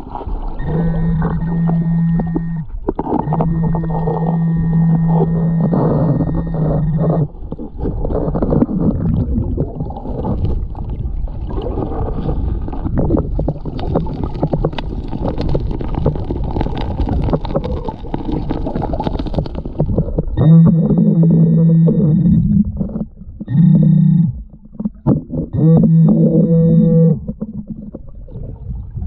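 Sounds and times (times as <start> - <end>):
gravel being dug underwater: 0.0 - 29.0
metal detector buzzing underwater: 0.5 - 9.7, 19.4 - 28.1.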